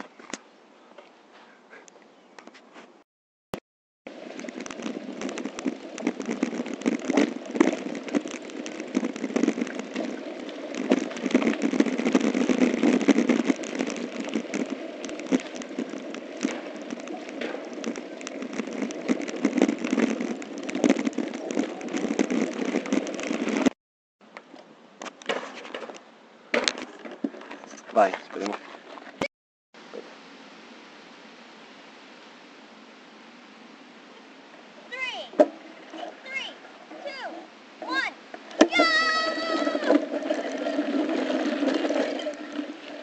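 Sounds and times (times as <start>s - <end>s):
camera rattling over bumpy ground: 4.1s - 23.8s, 24.5s - 29.3s, 35.3s - 43.0s.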